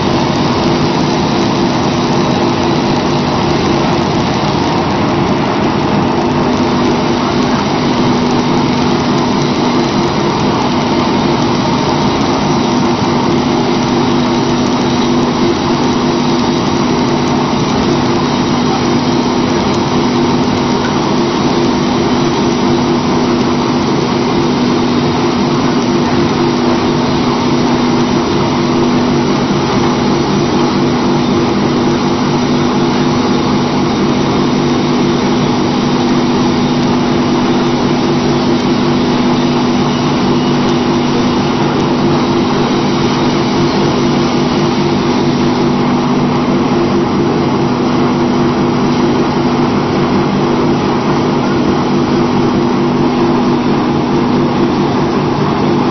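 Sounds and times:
briquetting machine humming: 0:00.0 - 0:55.9.

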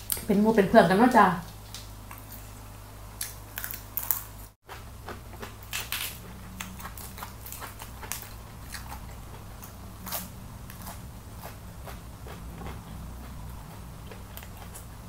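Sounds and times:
person chewing: 0:03.2 - 0:15.0.

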